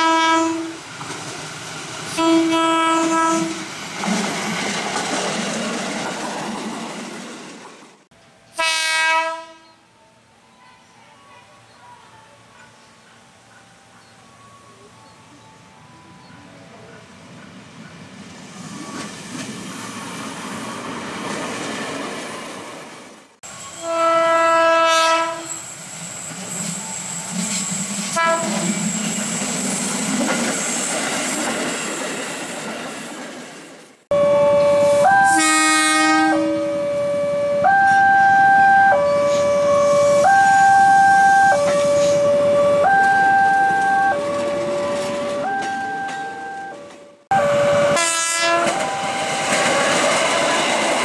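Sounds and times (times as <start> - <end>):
train horn blast: 0.0 - 0.8, 2.1 - 3.6, 8.5 - 9.8, 23.6 - 25.6, 28.1 - 28.7, 34.1 - 49.5
train wheels rumbling: 24.9 - 35.1, 41.5 - 51.0
two-note signal: 34.1 - 35.6, 36.2 - 49.6.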